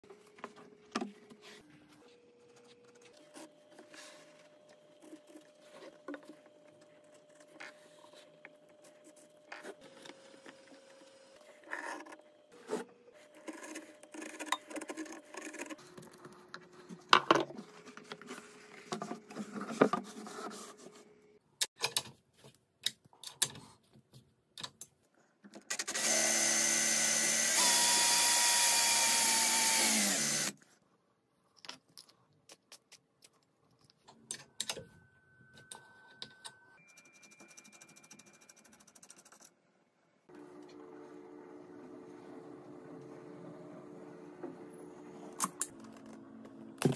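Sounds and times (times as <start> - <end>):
power tool motor running: 25.7 - 30.6.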